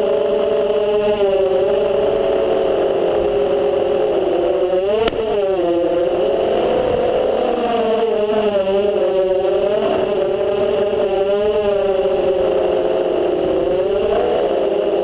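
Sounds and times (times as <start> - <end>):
quadcopter motors whining: 0.0 - 15.0
sharp click: 5.0 - 5.2.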